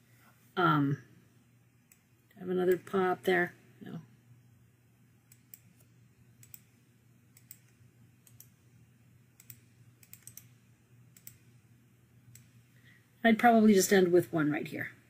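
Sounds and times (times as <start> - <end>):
low steady hum: 0.0 - 15.0
computer mouse clicks: 5.3 - 8.6, 9.4 - 11.5, 12.3 - 12.6.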